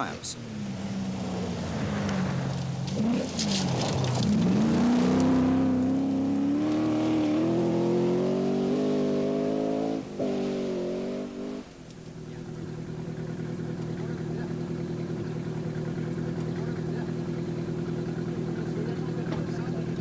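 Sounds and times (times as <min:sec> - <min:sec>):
engine crackle: 0:00.0 - 0:20.0
rally car engine at full throttle: 0:00.0 - 0:20.0.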